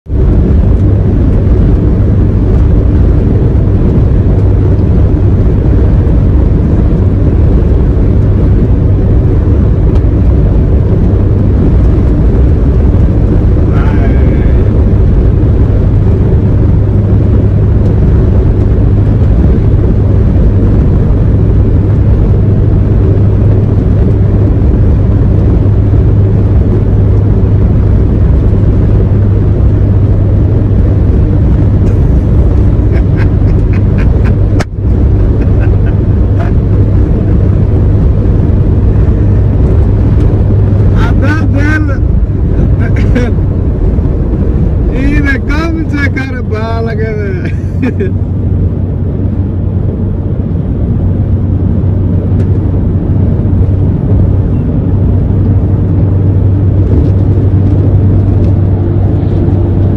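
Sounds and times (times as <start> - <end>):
truck engine and road noise: 0.0 - 59.9.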